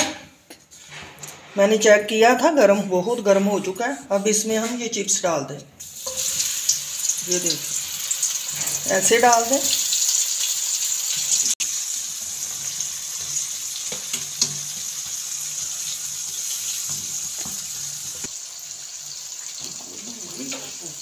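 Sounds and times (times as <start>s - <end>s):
chips deep-frying in oil: 5.8s - 21.0s.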